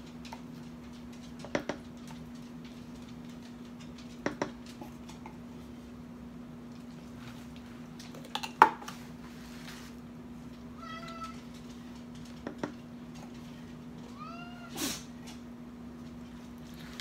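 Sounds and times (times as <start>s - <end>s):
cat meowing: 10.8s - 11.5s, 14.1s - 14.8s.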